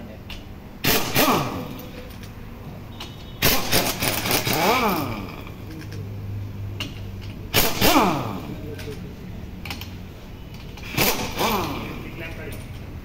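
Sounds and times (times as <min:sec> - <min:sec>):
impact wrench motor whine: 0:00.8 - 0:01.9, 0:03.4 - 0:05.6, 0:07.5 - 0:08.6, 0:10.6 - 0:12.2
impact wrench hammering: 0:00.8 - 0:02.4, 0:03.0 - 0:05.6, 0:06.8 - 0:09.0, 0:09.6 - 0:12.9.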